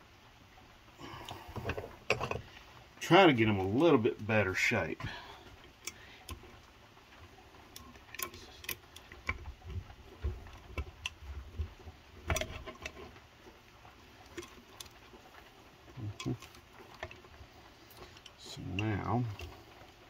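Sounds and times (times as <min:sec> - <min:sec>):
metal tool clicks and knocks: 0:01.6 - 0:02.4.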